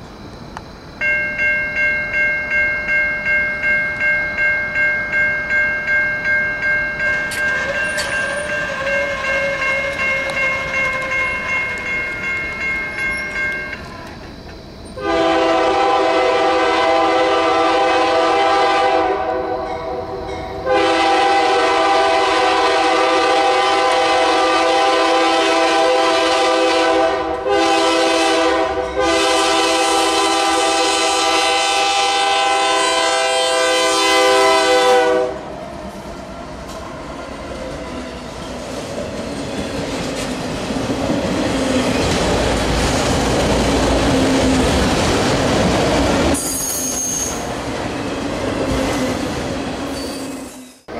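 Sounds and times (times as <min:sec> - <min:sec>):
train rumbling past: 0:00.0 - 0:50.9
locomotive air horn blowing: 0:07.8 - 0:10.8, 0:15.0 - 0:20.0, 0:20.6 - 0:35.5.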